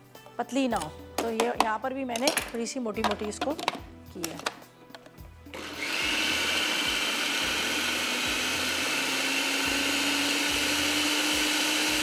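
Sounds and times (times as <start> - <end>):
food processor motor whine: 5.5 - 12.0.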